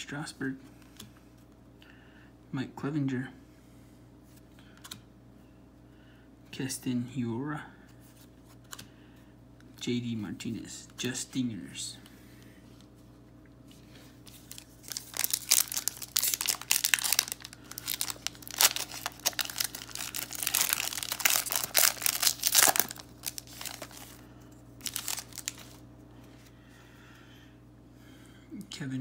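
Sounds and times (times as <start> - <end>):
plastic wrapper crinkling and tearing: 14.2 - 24.2, 24.8 - 25.8.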